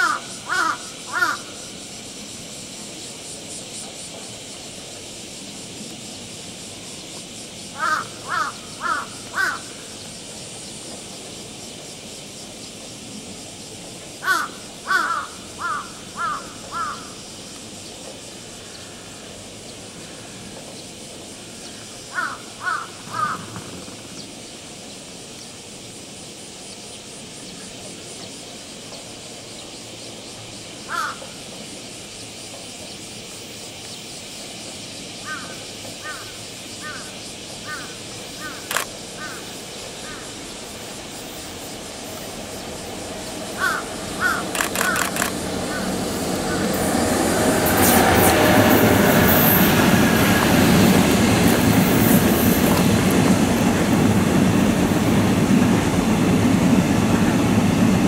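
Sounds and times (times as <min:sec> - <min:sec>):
crow cawing: 0:00.0 - 0:01.5, 0:07.8 - 0:09.7, 0:14.2 - 0:17.2, 0:22.1 - 0:23.6, 0:30.9 - 0:31.2, 0:35.3 - 0:37.1, 0:37.7 - 0:40.3, 0:43.6 - 0:46.8
steady hiss: 0:00.0 - 0:58.0.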